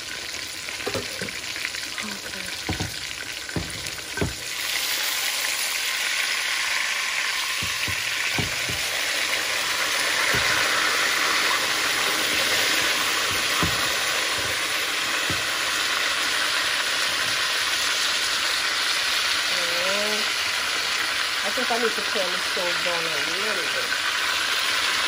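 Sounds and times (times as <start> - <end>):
meat sizzling in oil: 0.0 - 25.0
soft knocks turning meat: 2.6 - 4.5, 7.6 - 9.0, 10.0 - 11.0, 12.0 - 15.9.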